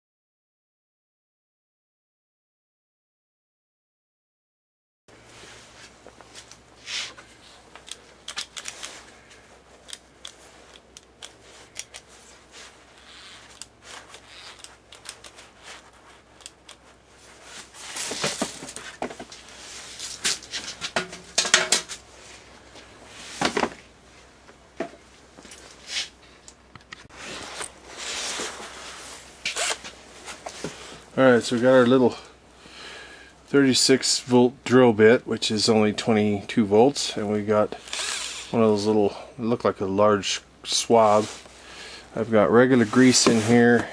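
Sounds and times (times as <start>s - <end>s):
tools clicking and clinking: 7.7s - 9.1s, 9.8s - 12.1s, 13.4s - 15.4s
knocks and rattles: 20.7s - 22.0s.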